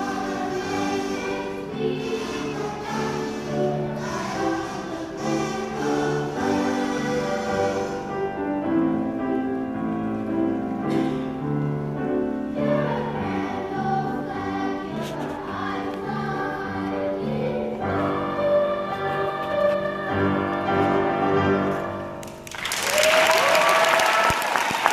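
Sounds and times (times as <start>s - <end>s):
boys' choir singing: 0.0s - 8.4s, 12.5s - 22.0s.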